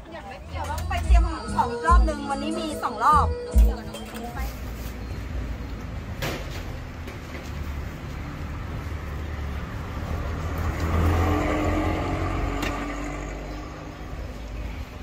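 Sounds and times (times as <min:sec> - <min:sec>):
vehicle passing by: 0:06.8 - 0:15.0.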